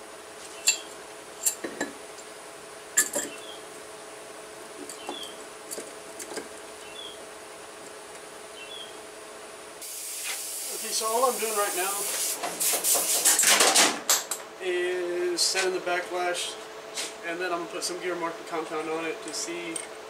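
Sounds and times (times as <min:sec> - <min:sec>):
metal clinks and knocks: 0:03.0 - 0:03.4.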